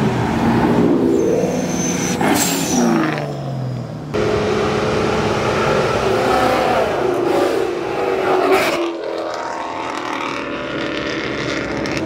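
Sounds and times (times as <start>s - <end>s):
car engine running steadily: 3.8s - 6.2s.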